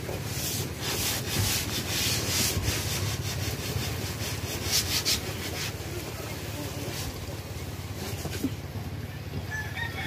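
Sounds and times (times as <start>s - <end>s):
paintbrush scrubbing on wood: 0.0s - 7.4s.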